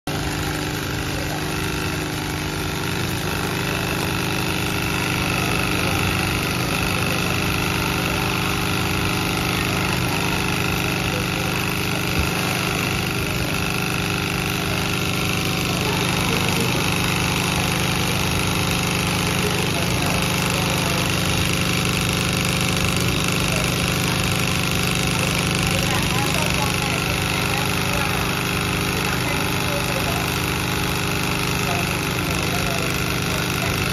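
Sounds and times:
sewing machine running: 0.1s - 33.9s.

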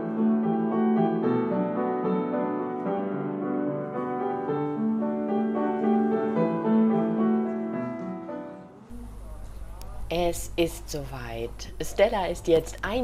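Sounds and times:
soft piano piece: 0.0s - 10.0s.

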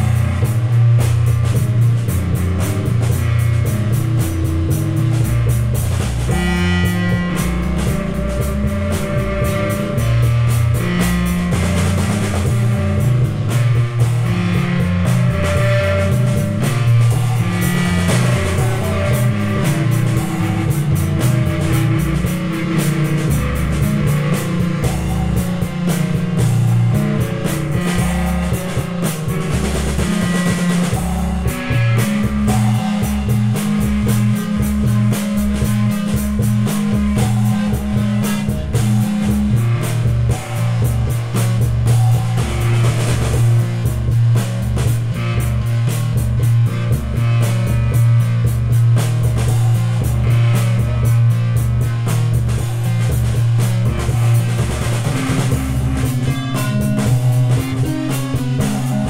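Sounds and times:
drum kit beat: 0.0s - 59.0s
electric guitar: 0.0s - 59.0s.

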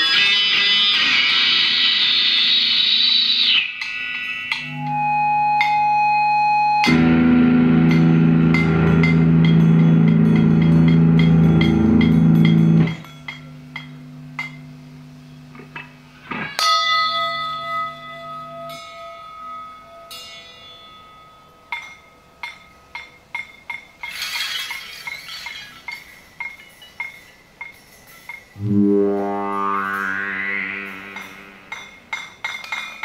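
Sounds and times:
bell-like struck tone: 3.8s - 23.2s, 28.6s - 32.6s
loud low guitar chord: 6.8s - 13.0s, 28.6s - 31.7s
irregular clicks and clinks: 21.8s - 28.6s
low held drone: 28.6s - 32.0s.

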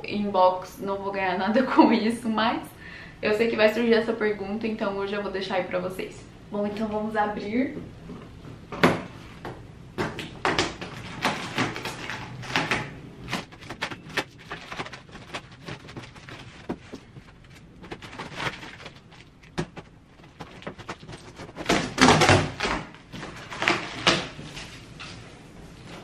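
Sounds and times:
cardboard rustling and thumping: 10.0s - 24.8s.

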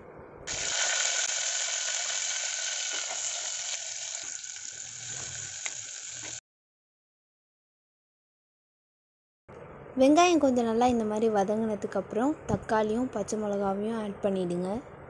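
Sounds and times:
onions sizzling in hot oil: 0.5s - 6.4s.

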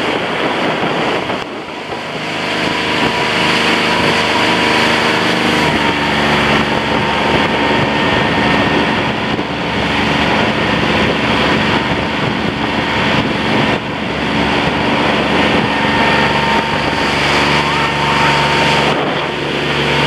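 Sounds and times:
boat motor running: 0.0s - 20.0s
wind buffeting microphone: 0.0s - 20.0s.

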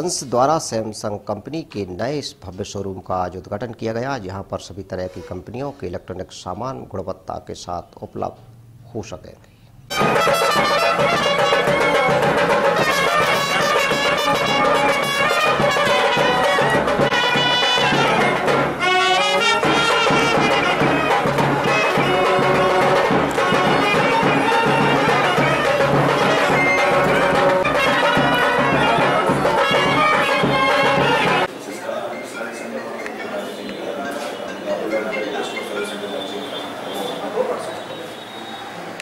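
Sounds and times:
brass music with trumpets: 9.9s - 31.5s.

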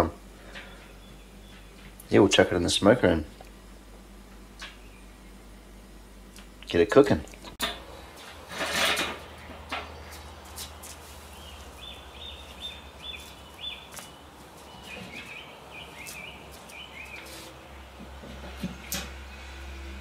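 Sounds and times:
songbird chirping: 0.6s - 2.2s, 4.5s - 5.6s, 9.4s - 18.0s.

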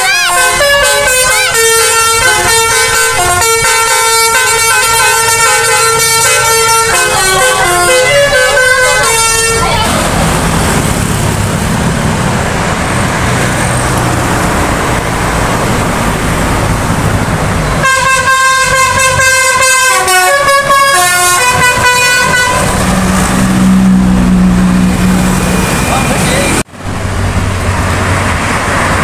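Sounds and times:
bus horn playing a tune: 0.0s - 10.0s, 17.8s - 24.8s
motorcycle engines: 0.0s - 29.0s
road traffic passing: 0.0s - 29.0s.

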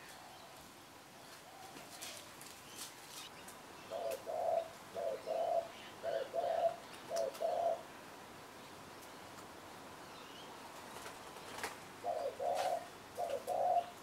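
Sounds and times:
dove cooing: 3.9s - 7.9s, 12.0s - 14.0s.

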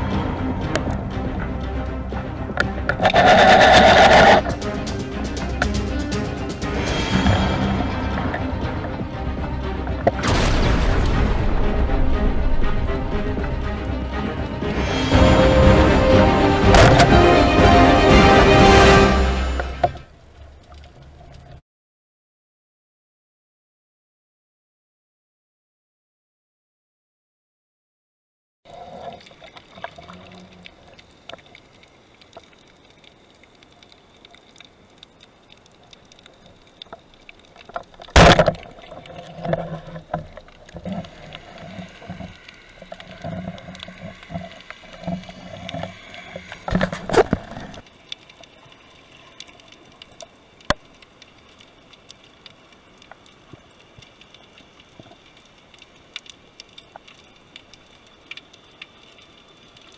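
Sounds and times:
faint underwater crackling: 0.0s - 10.3s, 18.6s - 21.6s, 28.7s - 59.9s
underwater sharp crack: 10.0s - 12.8s, 16.6s - 17.4s, 37.7s - 41.4s.

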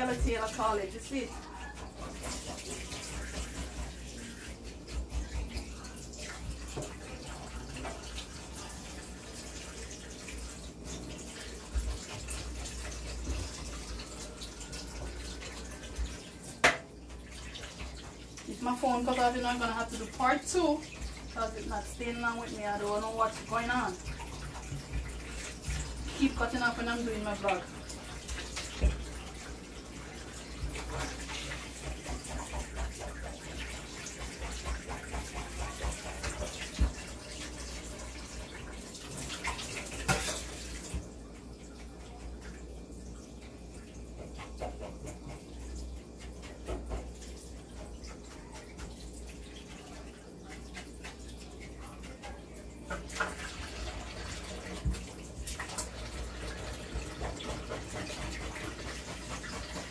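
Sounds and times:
tap running into steel sink: 16.6s - 16.9s.

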